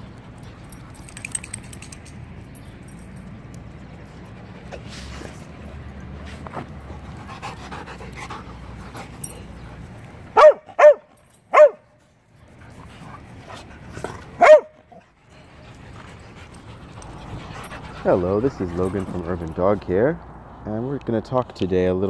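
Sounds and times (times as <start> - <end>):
dog barking: 10.4 - 11.8, 14.4 - 14.8.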